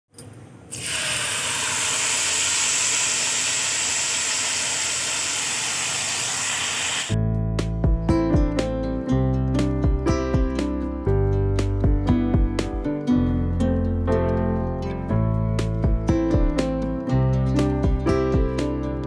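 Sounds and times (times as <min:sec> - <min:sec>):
liquid sizzling in hot oil: 0:00.7 - 0:07.2
acoustic guitar music: 0:07.4 - 0:19.0.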